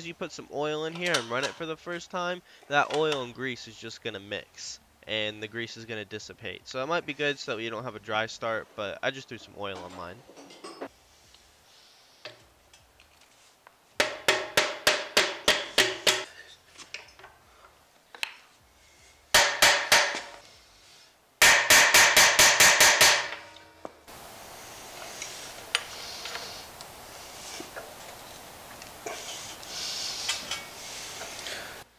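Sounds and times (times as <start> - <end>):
hammer striking metal: 14.0 - 16.3, 19.3 - 20.4, 21.4 - 23.8.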